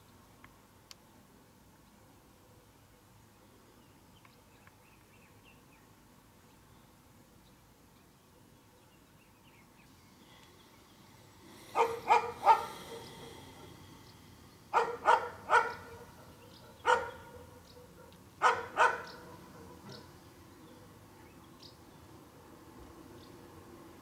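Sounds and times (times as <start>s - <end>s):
dog barking: 11.7s - 13.8s, 14.7s - 20.2s.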